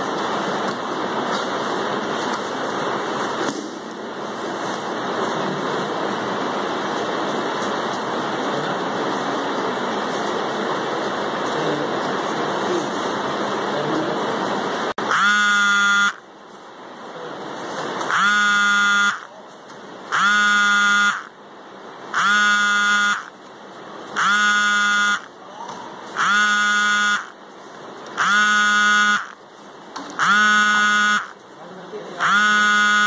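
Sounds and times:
electronic buzzer blasts: 15.0s - 16.3s, 18.0s - 19.3s, 20.1s - 21.4s, 22.1s - 23.4s, 24.2s - 25.3s, 26.2s - 27.4s, 28.2s - 29.4s, 30.2s - 31.4s, 32.2s - 33.0s.

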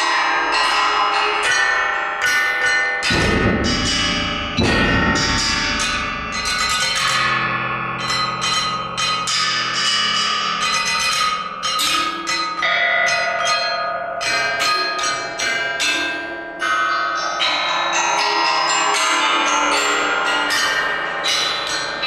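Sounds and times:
bell-like metallic strokes: 3.0s - 13.4s
held low tones: 3.1s - 8.9s.

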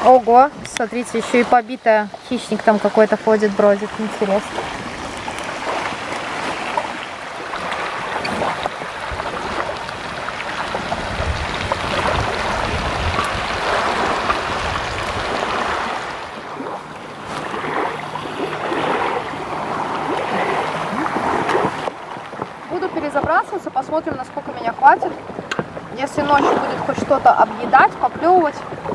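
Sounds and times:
rain falling: 4.9s - 16.3s.

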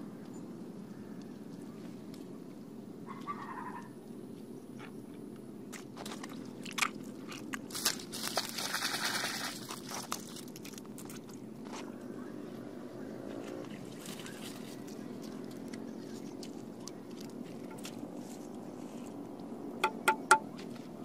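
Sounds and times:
wet mud and stems crunching: 5.7s - 12.4s, 13.2s - 19.6s
low background drone: 10.3s - 21.0s.

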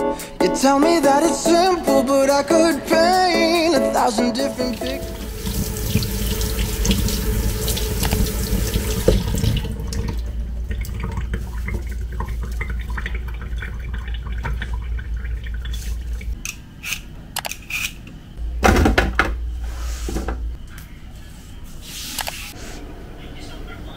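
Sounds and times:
tap water running into bowl: 4.6s - 16.4s
sharp clicks and knocks: 16.4s - 19.4s.

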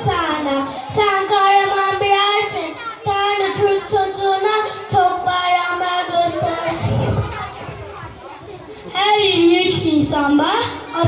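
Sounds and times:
girl singing into a microphone: 0.0s - 7.4s.

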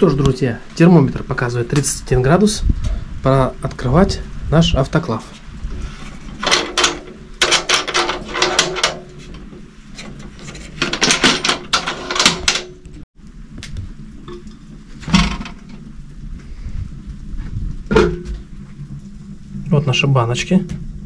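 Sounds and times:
metal clicking and clanking: 6.2s - 13.0s.

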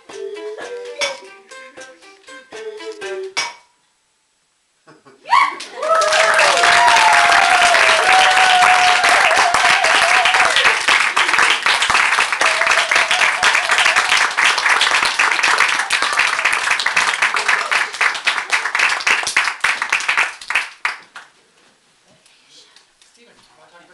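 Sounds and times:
audience cheering: 5.3s - 19.2s
small audience applauding: 5.3s - 21.4s.

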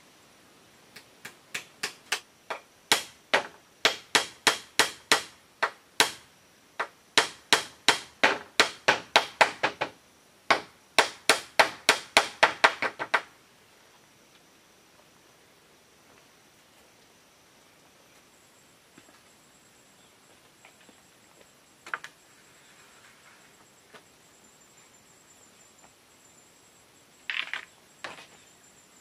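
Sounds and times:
hammer knocking on bamboo: 1.2s - 6.2s, 6.8s - 13.3s.

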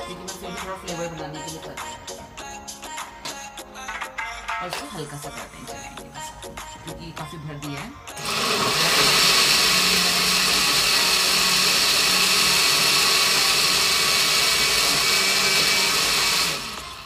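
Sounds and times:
electric blender running: 8.1s - 17.0s.

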